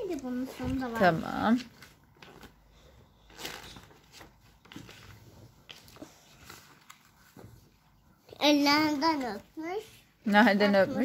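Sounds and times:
paper pages rustling: 0.0s - 8.0s.

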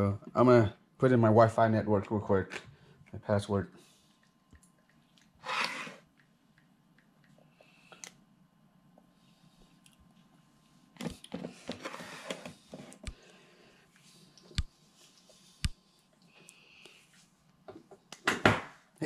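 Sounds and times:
rustling at a desk: 9.0s - 13.2s.

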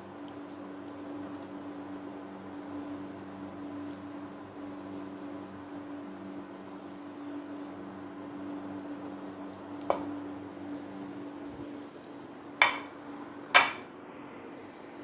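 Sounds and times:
steady low hum: 0.0s - 15.0s
crockery clinking: 12.6s - 12.9s, 13.6s - 13.9s.

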